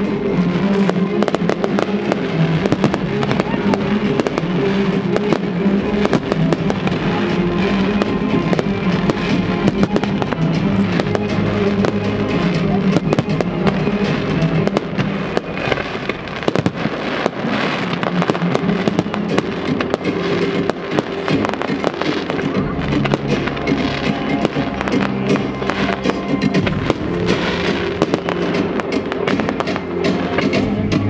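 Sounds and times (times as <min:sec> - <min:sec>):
fireworks bursting and crackling: 0:00.0 - 0:31.0
loud music: 0:00.0 - 0:31.0.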